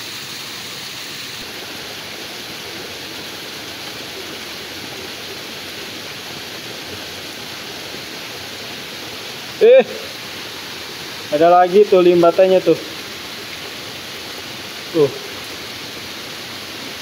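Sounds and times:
rain falling on stream and leaves: 0:00.0 - 0:17.0.

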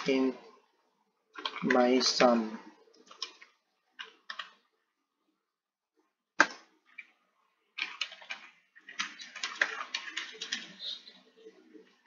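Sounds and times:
computer keyboard typing: 0:01.3 - 0:02.4, 0:03.0 - 0:04.6, 0:06.4 - 0:11.2.

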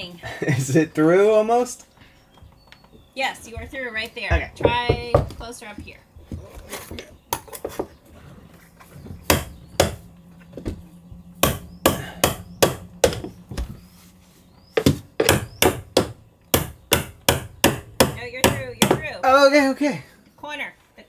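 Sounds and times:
hammer knocking on a tool: 0:04.3 - 0:06.0, 0:09.2 - 0:10.0, 0:11.4 - 0:13.3, 0:14.8 - 0:19.1.

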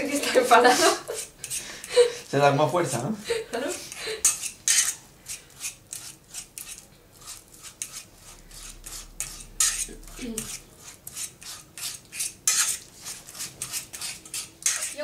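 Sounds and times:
bananas mashed in metal pot: 0:03.6 - 0:15.0.

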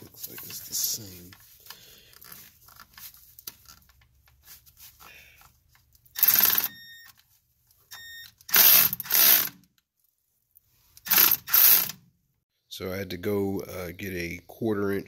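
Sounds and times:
electric ratchet spinning: 0:06.2 - 0:06.8, 0:08.5 - 0:09.6, 0:11.0 - 0:12.0.

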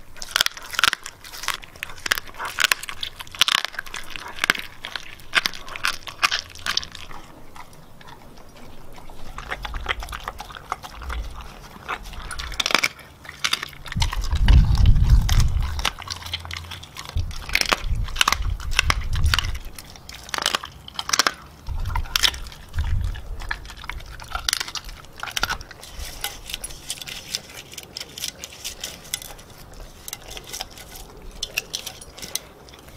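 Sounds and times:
dog crunching raw meat: 0:00.0 - 0:32.9
low rumbling: 0:05.2 - 0:12.8, 0:13.7 - 0:19.9, 0:21.7 - 0:26.5.

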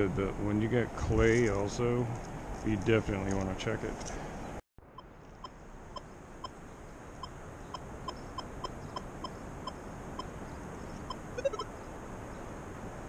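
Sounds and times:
metal detector high blips: 0:11.4 - 0:11.7.

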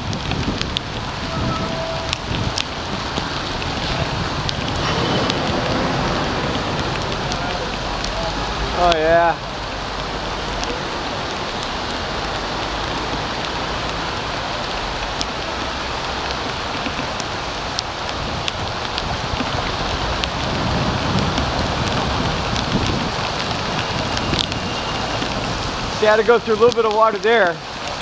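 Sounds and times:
heavy rain on flooded street: 0:00.0 - 0:28.0
raindrop ticking on camera: 0:00.0 - 0:28.0.

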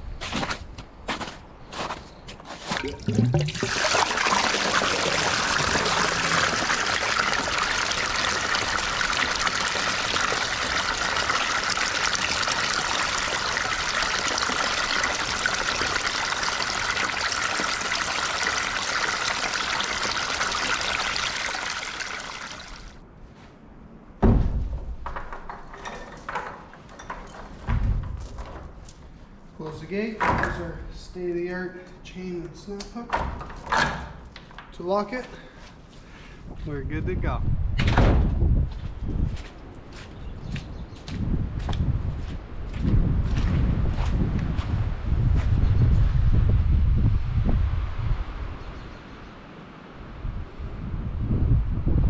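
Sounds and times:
water pouring into a trough: 0:02.7 - 0:23.0.

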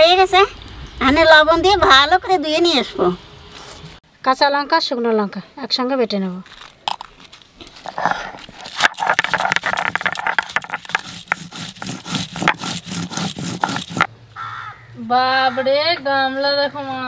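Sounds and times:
stone grinding on stone slab: 0:07.8 - 0:14.1.

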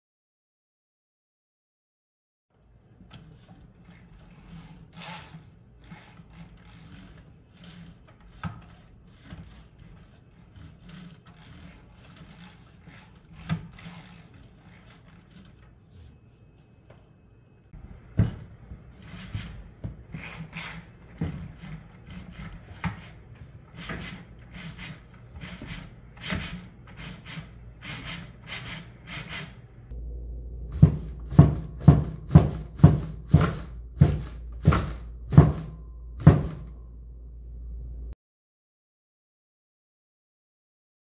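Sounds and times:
motor hum: 0:29.0 - 0:38.1
sharp knocks: 0:30.7 - 0:36.8.

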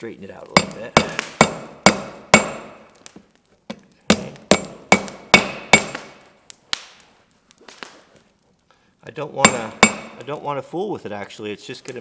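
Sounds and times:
hammer ringing on anvil: 0:04.1 - 0:06.0, 0:09.4 - 0:10.2.

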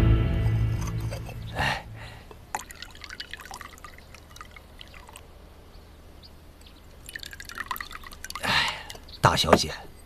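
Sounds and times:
tea trickling into a cup: 0:02.4 - 0:05.3, 0:06.9 - 0:09.6.

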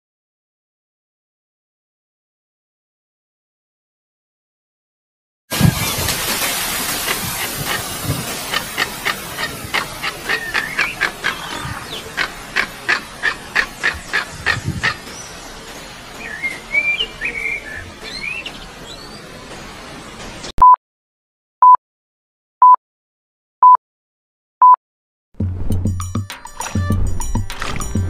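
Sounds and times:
whistled bird calls: 0:08.8 - 0:15.4, 0:16.2 - 0:19.2
short electronic beeps: 0:20.6 - 0:20.8.

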